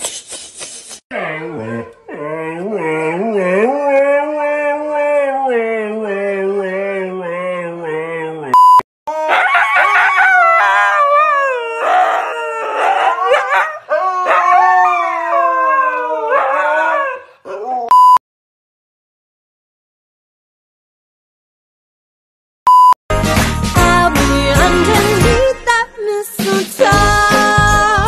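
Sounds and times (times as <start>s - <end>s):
short steady beep: 8.6s - 8.8s, 17.9s - 18.2s, 22.7s - 23.0s
huskies howling: 9.2s - 17.9s.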